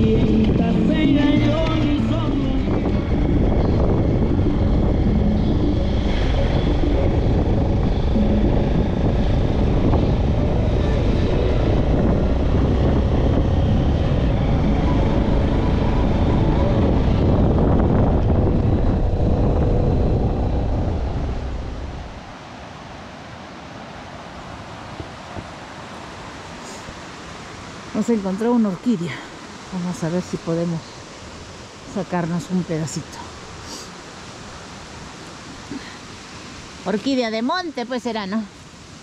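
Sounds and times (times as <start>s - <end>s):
car engine and road noise: 0.0s - 28.8s.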